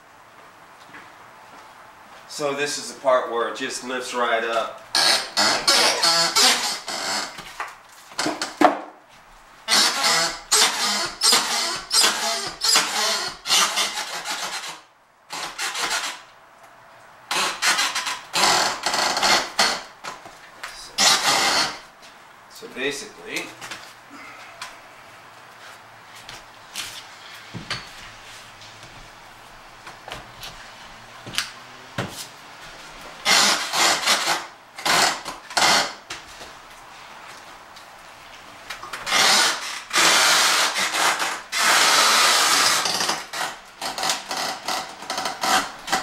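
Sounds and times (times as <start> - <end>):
drywall and wood scraping: 5.0 - 8.6, 9.7 - 14.8.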